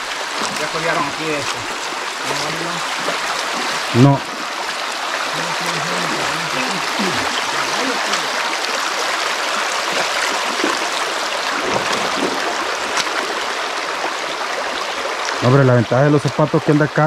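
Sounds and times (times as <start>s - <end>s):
water rushing and splashing in creek: 0.0s - 17.0s
faint voice: 3.9s - 4.2s, 5.3s - 8.5s.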